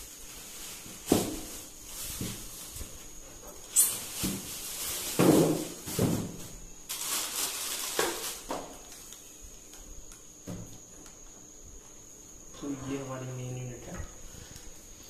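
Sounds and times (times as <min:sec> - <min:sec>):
plastic wrapping rustling: 0:00.0 - 0:09.2.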